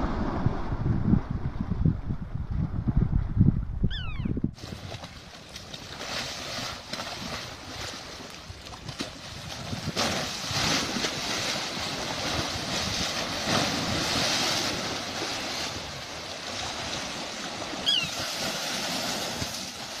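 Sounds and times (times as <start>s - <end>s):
floodwater rushing and churning: 4.6s - 20.0s.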